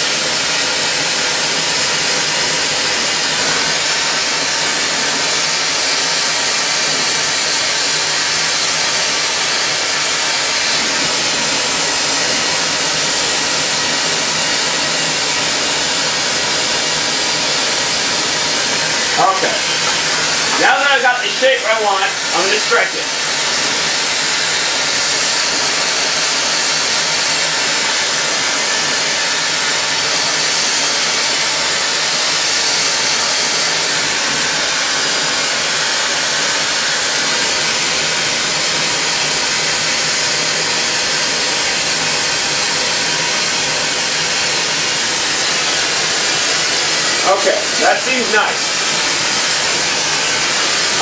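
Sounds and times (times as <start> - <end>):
torch flame hissing: 0.0 - 51.0.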